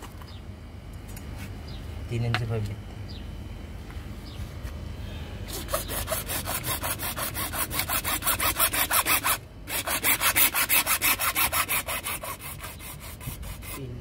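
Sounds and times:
hacksaw sawing through plastic pipe: 0:05.5 - 0:14.0.

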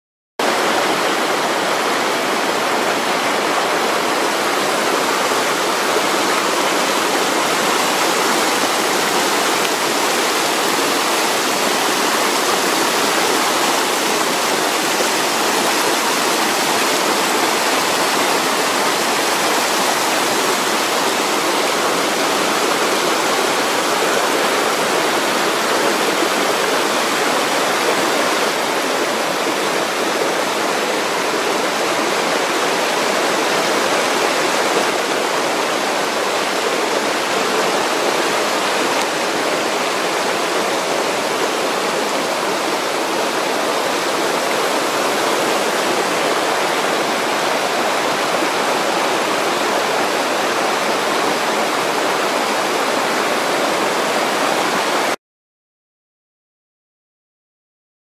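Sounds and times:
stream rushing over rocks: 0:00.4 - 0:55.2.

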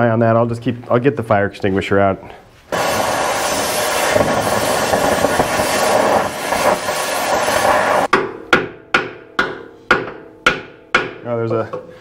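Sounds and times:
cutting torch hissing: 0:02.7 - 0:08.1
sharp metal knock: 0:08.1 - 0:11.2.

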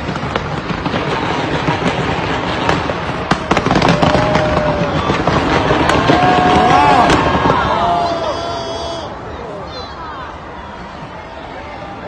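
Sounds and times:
fireworks crackling and banging: 0:00.0 - 0:09.2.

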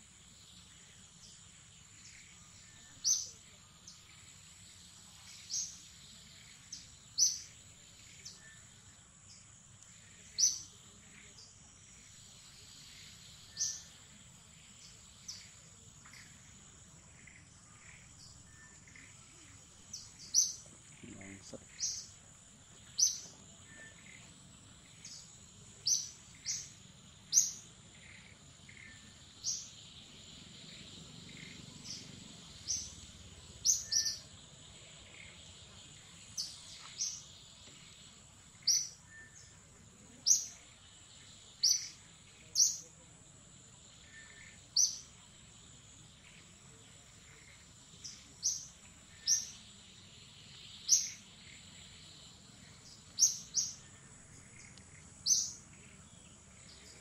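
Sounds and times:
high-pitched insect drone: 0:00.0 - 0:43.1, 0:43.9 - 0:57.0
high bird chirps: 0:30.6 - 0:34.3, 0:47.3 - 0:49.7, 0:50.4 - 0:53.9, 0:54.5 - 0:55.7.

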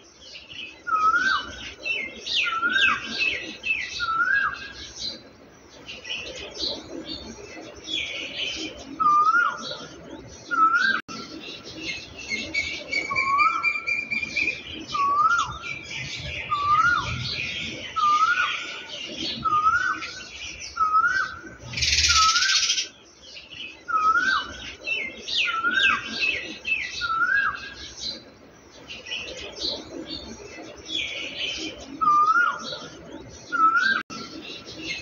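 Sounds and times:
birds twittering: 0:00.0 - 0:35.0
bird repeating rising-falling call: 0:21.7 - 0:22.9.

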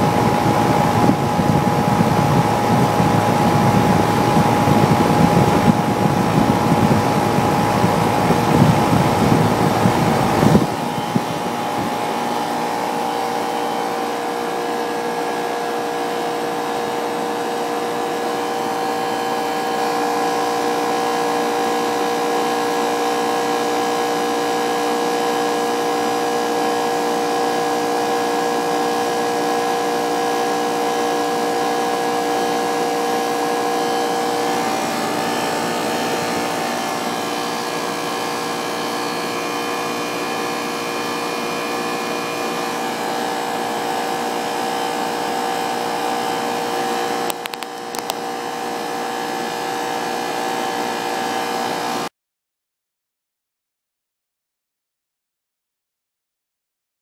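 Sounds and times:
fans whooshing: 0:00.0 - 0:16.4
held machine tones: 0:00.0 - 0:21.4
compressor machine hum: 0:00.0 - 0:52.1.

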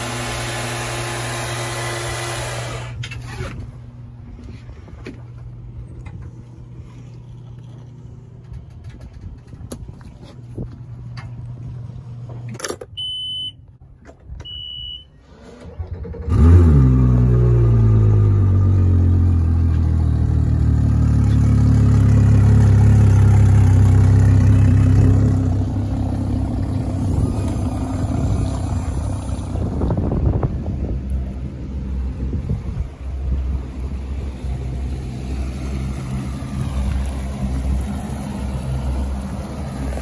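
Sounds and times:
outboard motor starting and idling: 0:00.0 - 0:11.7, 0:14.4 - 0:18.7
short high beeps: 0:12.9 - 0:13.6, 0:14.4 - 0:15.2.

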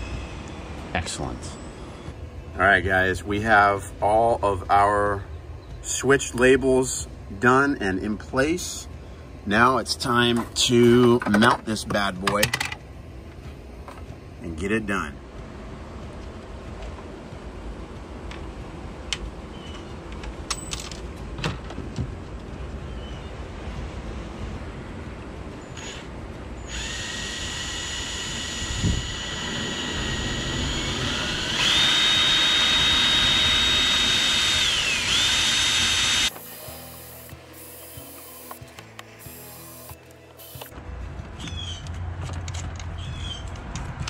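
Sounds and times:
power drill motor whining: 0:25.7 - 0:40.7
handling clicks and knocks: 0:40.6 - 0:44.0.

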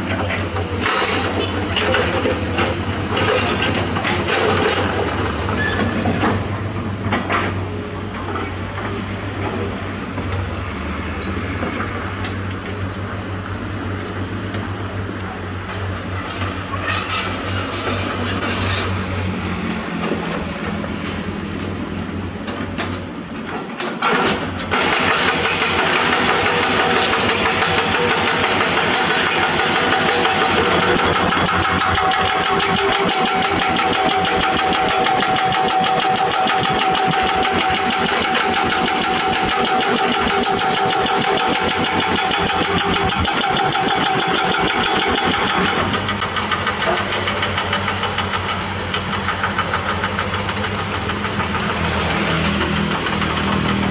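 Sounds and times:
hydraulic breaker hammering rock: 0:00.0 - 0:07.6, 0:23.5 - 0:53.9
diesel engine running: 0:00.0 - 0:53.9.

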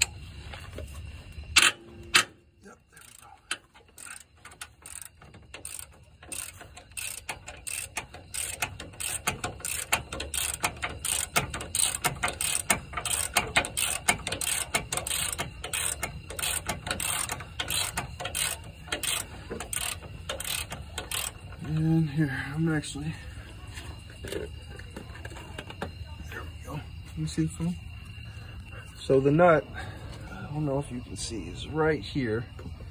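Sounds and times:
socket ratchet clicking: 0:03.0 - 0:21.6.

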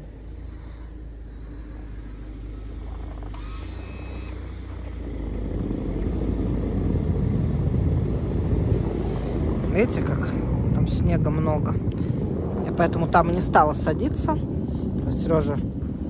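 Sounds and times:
car engine rumble approaching: 0:00.0 - 0:16.0.

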